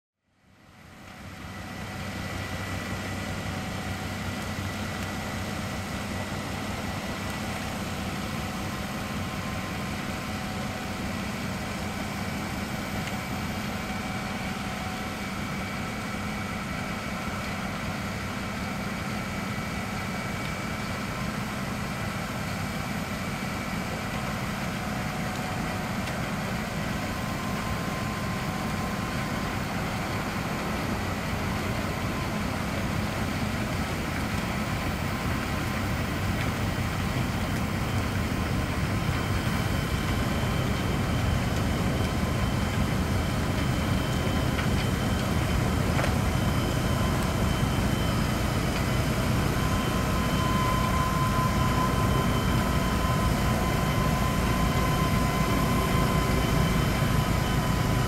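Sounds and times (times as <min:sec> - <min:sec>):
tractor engine hum: 0:00.5 - 0:58.0
faint high whine: 0:23.0 - 0:58.0.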